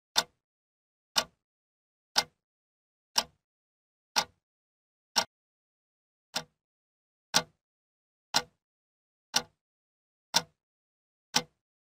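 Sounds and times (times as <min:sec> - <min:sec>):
clock ticking: 0:00.2 - 0:00.4, 0:01.2 - 0:01.4, 0:02.2 - 0:02.4, 0:03.2 - 0:03.4, 0:04.2 - 0:04.4, 0:05.2 - 0:05.4, 0:06.3 - 0:06.6, 0:07.3 - 0:07.6, 0:08.3 - 0:08.6, 0:09.3 - 0:09.6, 0:10.3 - 0:10.6, 0:11.3 - 0:11.6.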